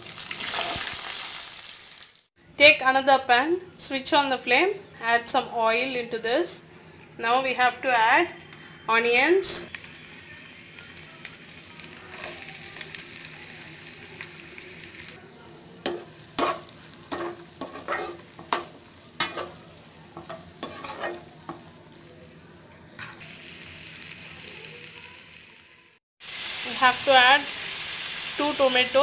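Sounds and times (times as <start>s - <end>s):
onions sizzling in hot oil: 0.0s - 2.3s, 9.7s - 29.0s
spatula scraping a pan: 15.8s - 19.6s, 20.2s - 21.7s.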